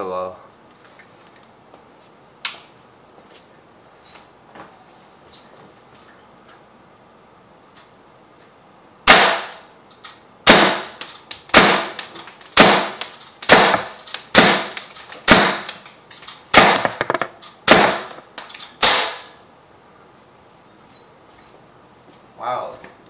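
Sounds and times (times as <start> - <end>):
air pistol shots: 9.0 - 9.7, 10.4 - 19.4.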